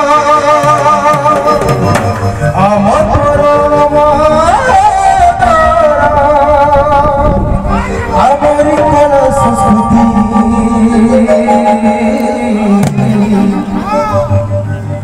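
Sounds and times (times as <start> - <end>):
folk melody with wavering notes: 0.0 - 6.4, 8.8 - 15.0
barrel drums beating: 0.5 - 2.6.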